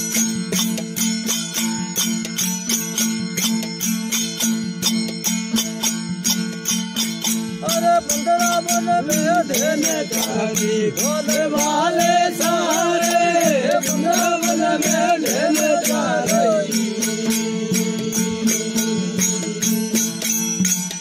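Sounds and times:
jingling percussion: 0:00.0 - 0:21.0
steady drone: 0:09.8 - 0:20.4.

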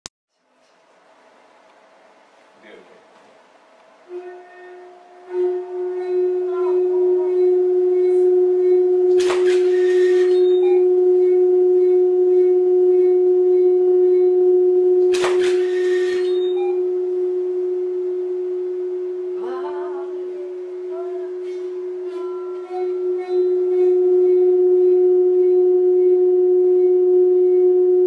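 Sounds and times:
steady pure tone: 0:01.0 - 0:28.0.

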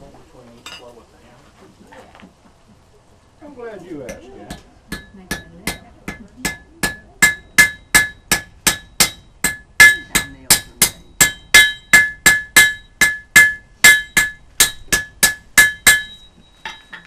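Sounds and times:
hammer striking iron on anvil: 0:04.1 - 0:17.0.

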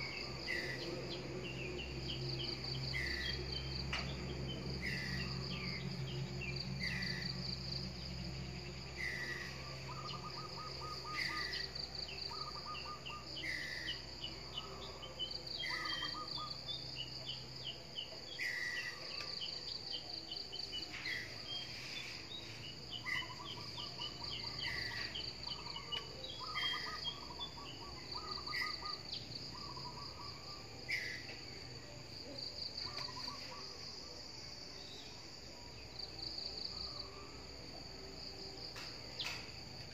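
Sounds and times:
pulsing insect trill: 0:00.0 - 0:39.9
bird trills: 0:23.0 - 0:31.3.

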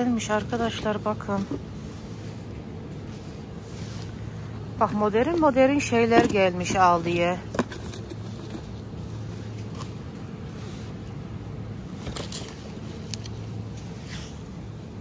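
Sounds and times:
shop background hum: 0:00.0 - 0:15.0
cardboard boxes rustling: 0:04.8 - 0:10.2.

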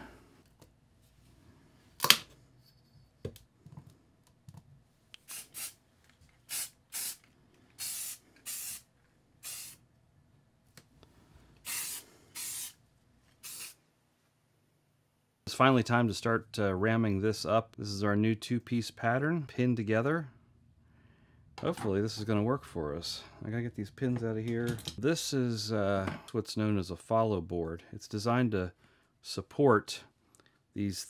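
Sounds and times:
spray paint can hissing: 0:05.2 - 0:05.8, 0:06.5 - 0:07.2, 0:07.8 - 0:09.8, 0:11.6 - 0:12.8, 0:13.4 - 0:13.8.

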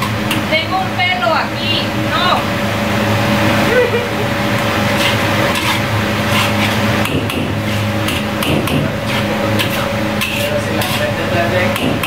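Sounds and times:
kitchen hum: 0:00.0 - 0:12.0
utensils scraping a wok: 0:04.4 - 0:12.0.

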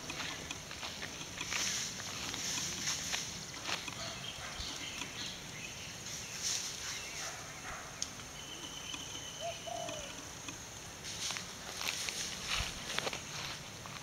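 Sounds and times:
faint clicks and rustles: 0:00.0 - 0:05.3
steady high hiss: 0:00.0 - 0:14.0
short bird calls: 0:06.9 - 0:10.2.

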